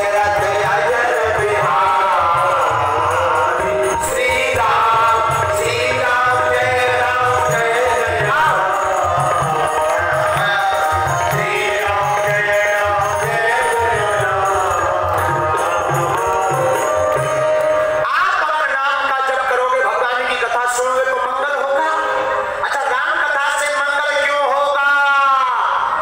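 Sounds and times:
rhythmic drum beat: 0.0s - 18.0s
devotional singing over loudspeaker: 0.0s - 26.0s.

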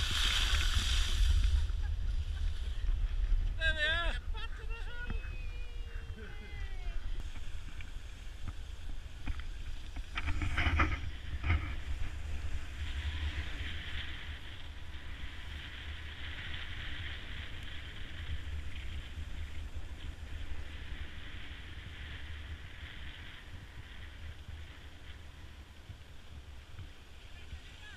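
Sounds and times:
skis sliding over snow: 0.0s - 27.9s
wind buffeting microphone: 0.0s - 27.9s
short knocks or scrapes: 10.0s - 11.9s.

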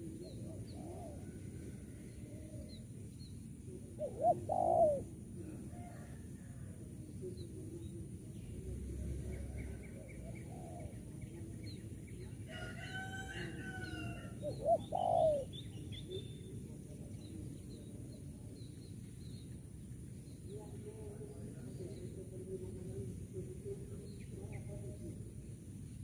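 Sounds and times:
dove cooing: 0.0s - 2.8s, 3.7s - 6.1s, 9.4s - 11.2s, 14.1s - 16.3s
rooster crowing: 12.5s - 14.4s
small birds chirping: 13.8s - 26.0s.

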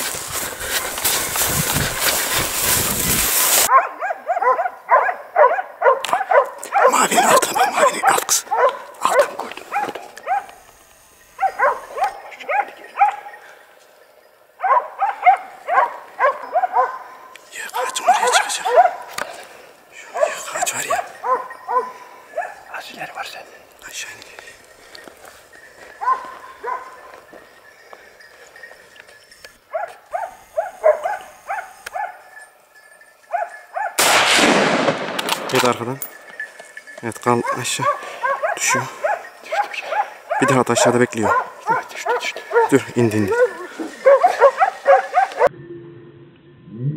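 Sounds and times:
dogs yelping barks: 3.5s - 10.7s, 11.3s - 13.6s, 14.5s - 23.8s, 24.5s - 34.1s, 35.8s - 45.5s.

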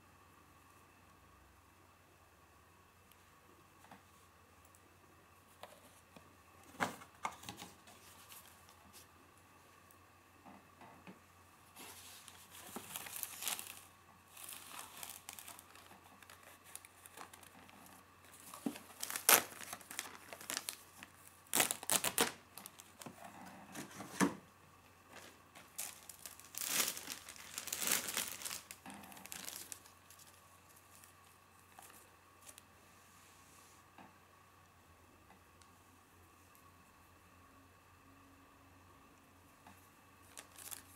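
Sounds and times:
plastic bag crinkling: 11.8s - 23.2s, 25.1s - 32.6s, 40.2s - 40.9s.

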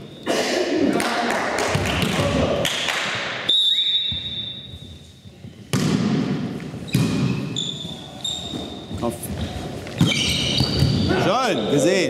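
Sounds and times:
referee's whistle: 3.5s - 4.9s
volleyball being struck: 5.7s - 7.5s.

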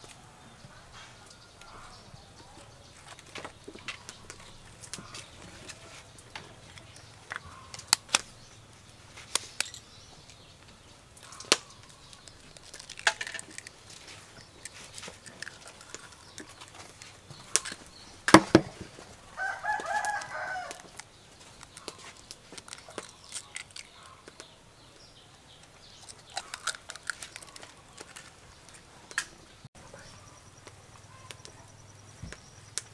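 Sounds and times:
egg cracking knock: 18.3s - 18.9s
chicken calling: 19.2s - 21.0s.

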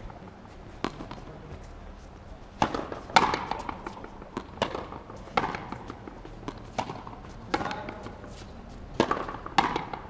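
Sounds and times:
ball cracking off rackets: 2.6s - 8.1s, 9.0s - 10.0s
ball slapping against wall: 9.0s - 10.0s.

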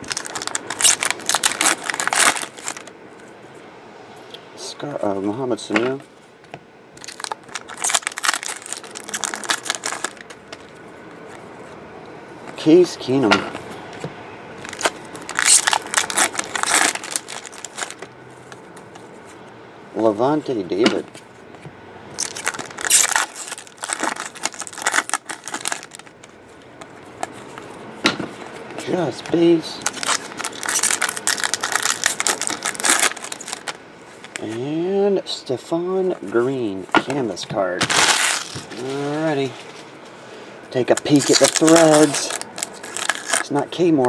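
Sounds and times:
cards and wrappers crinkling: 0.0s - 2.9s, 7.0s - 11.8s, 14.6s - 19.1s, 22.2s - 34.7s, 37.8s - 39.8s, 40.8s - 44.0s.

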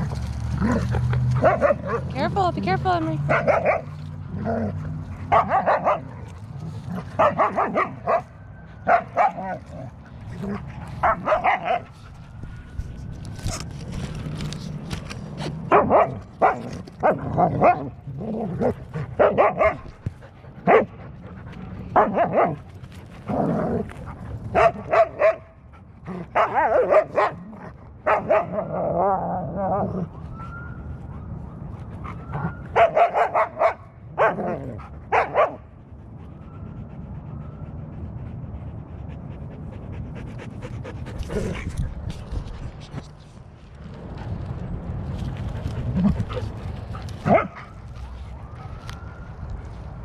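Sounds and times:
dogs barking: 0.6s - 2.2s, 3.2s - 6.2s, 6.9s - 9.6s, 10.4s - 11.9s, 15.6s - 17.9s, 18.6s - 19.9s, 20.6s - 21.0s, 21.9s - 22.6s, 24.5s - 25.6s, 26.2s - 29.0s, 32.7s - 35.7s, 47.2s - 47.8s.

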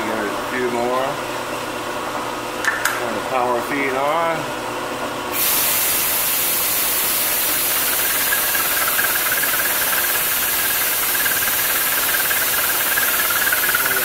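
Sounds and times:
milling machine cutting hiss: 5.4s - 14.0s.

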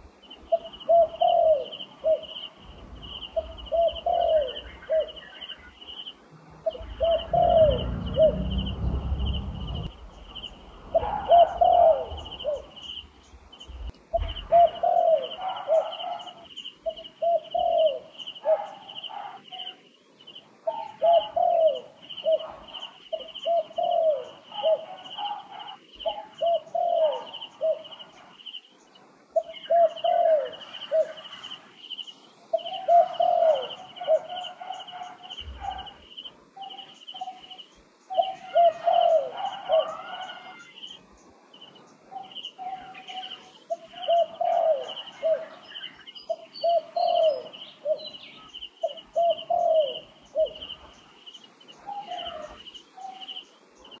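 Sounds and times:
dove cooing: 0.0s - 13.1s, 13.7s - 19.8s, 20.6s - 28.5s, 29.4s - 31.6s, 32.5s - 40.8s, 42.1s - 51.0s, 51.8s - 53.4s
high pulsing buzz: 6.3s - 11.0s.

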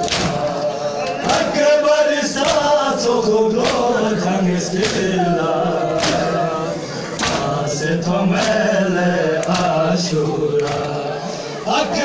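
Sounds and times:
men chanting in unison: 0.0s - 12.0s
hands striking bare chests: 3.6s - 3.9s, 6.0s - 6.3s.

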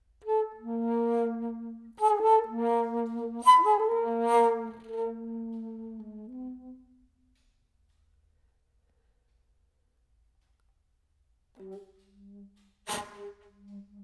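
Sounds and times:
flute playing low notes: 0.0s - 7.2s, 11.6s - 14.0s.

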